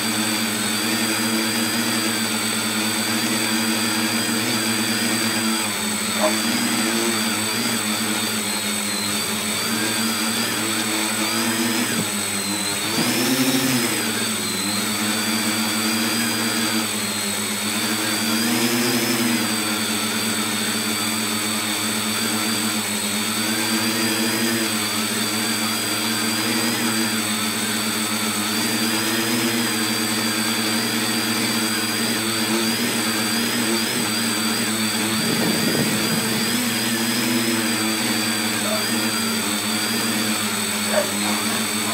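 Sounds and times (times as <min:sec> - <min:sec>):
drone motors and propellers buzzing: 0:00.0 - 0:41.9
high whine: 0:34.7 - 0:37.6.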